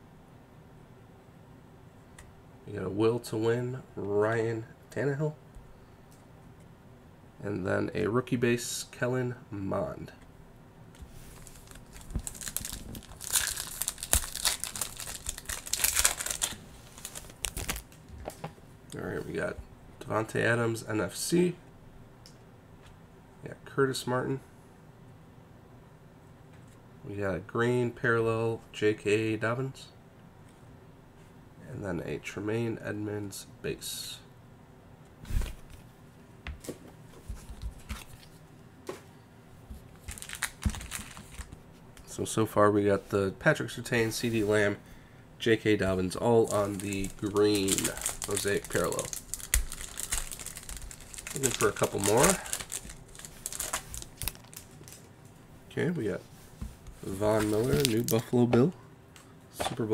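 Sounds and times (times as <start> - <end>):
foil wrapper crinkling and tearing: 11.3 - 18.0, 40.0 - 41.6, 46.4 - 55.1, 57.2 - 58.3.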